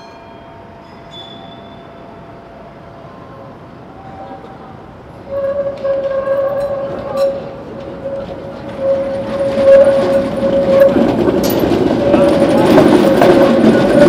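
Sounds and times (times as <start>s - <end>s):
tram running rumble: 0.0s - 14.0s
tram wheels squealing on rails: 0.0s - 14.0s
wheels clacking over rail crossings: 3.0s - 14.0s.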